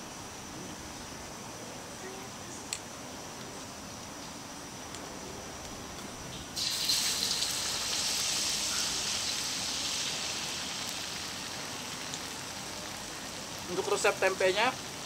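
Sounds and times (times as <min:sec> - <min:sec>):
oil sizzling in a frying pan: 0:06.3 - 0:15.0.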